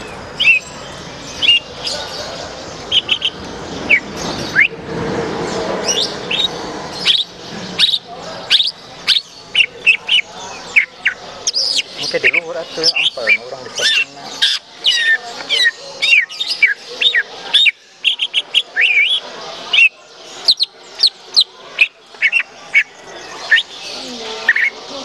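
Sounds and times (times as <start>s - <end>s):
bird chirping and whistling: 0.4s - 2.0s, 2.9s - 4.8s, 5.8s - 23.8s, 24.4s - 24.8s.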